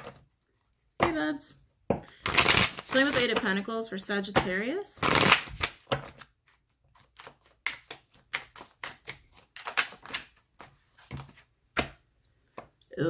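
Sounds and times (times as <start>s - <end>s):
cards being shuffled: 2.1s - 3.5s, 5.0s - 12.7s.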